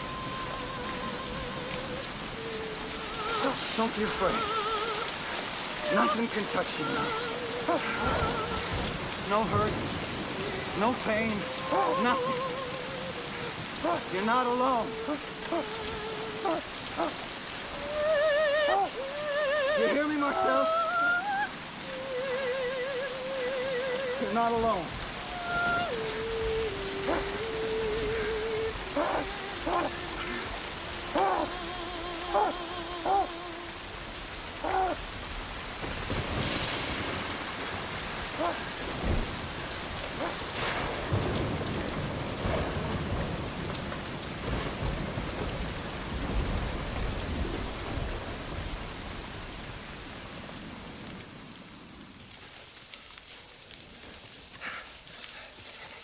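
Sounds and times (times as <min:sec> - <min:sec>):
thunder rolling: 0:00.0 - 0:17.0, 0:34.6 - 0:51.5
heavy rain pouring: 0:00.0 - 0:56.0.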